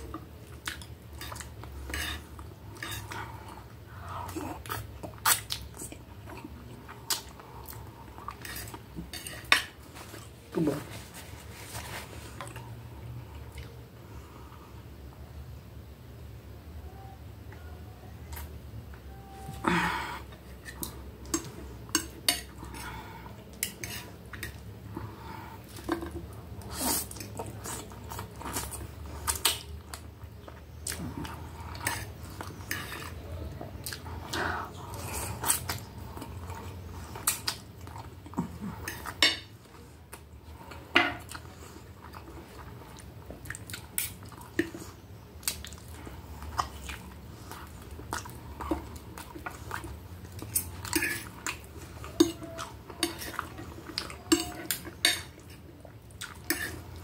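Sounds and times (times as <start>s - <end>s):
chewing: 20.3s - 57.0s
cutlery clinking on a plate: 54.3s - 55.4s.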